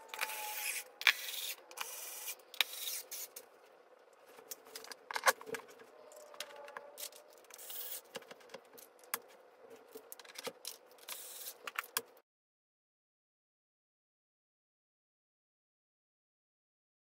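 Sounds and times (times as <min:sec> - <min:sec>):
plastic parts clicking and scraping: 0:04.1 - 0:12.2.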